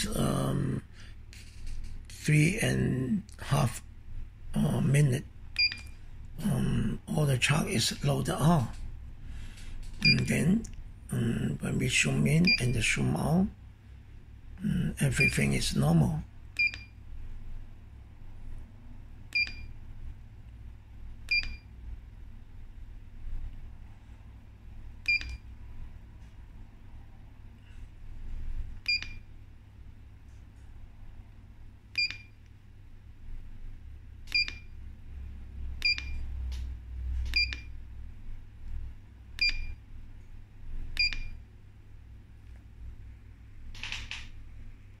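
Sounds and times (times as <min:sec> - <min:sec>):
low steady hum: 0:00.0 - 0:45.0
short high key beeps: 0:35.8 - 0:36.2.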